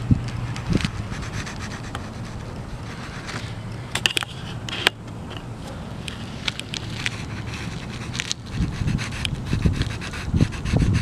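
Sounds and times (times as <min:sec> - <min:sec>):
steady low rumble: 0:00.0 - 0:11.0
pencil scratching on paper: 0:00.8 - 0:03.5, 0:06.9 - 0:11.0.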